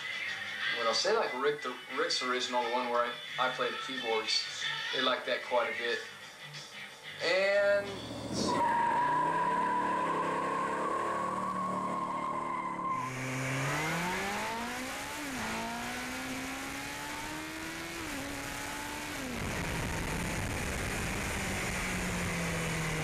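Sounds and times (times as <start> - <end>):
car tyres squealing: 7.5 - 18.7
motorcycle engine accelerating: 7.6 - 23.0.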